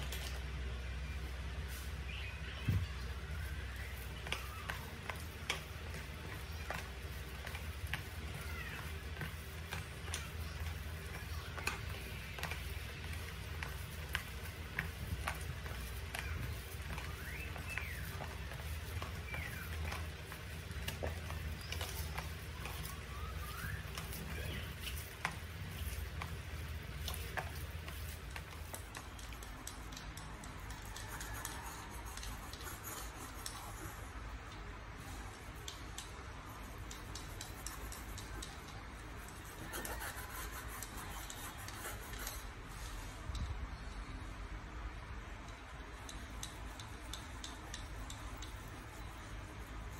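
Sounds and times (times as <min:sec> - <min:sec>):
hand kneading food mixture: 0:00.0 - 0:49.9.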